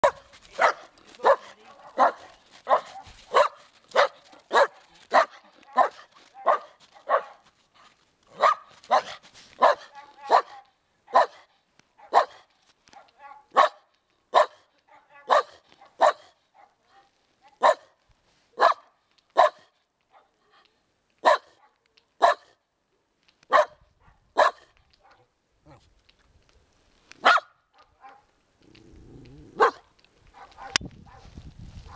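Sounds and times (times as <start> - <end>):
dog barking: 0.0 - 7.5, 8.3 - 18.0, 18.6 - 20.4, 21.2 - 22.6, 23.5 - 25.8, 27.2 - 28.3, 29.6 - 31.3.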